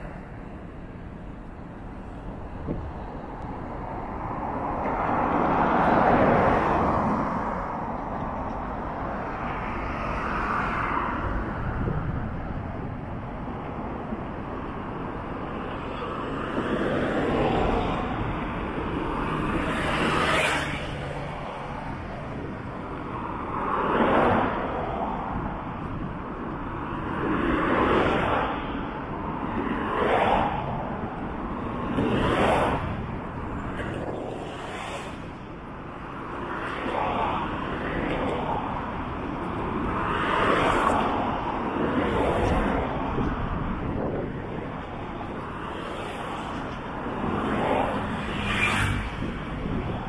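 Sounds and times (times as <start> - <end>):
cars passing by: 0.0 - 50.0
steady traffic hum: 0.0 - 50.0.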